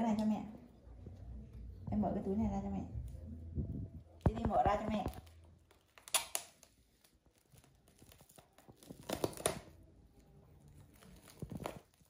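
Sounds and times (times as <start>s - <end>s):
plastic cling wrap crinkling: 4.2s - 12.0s.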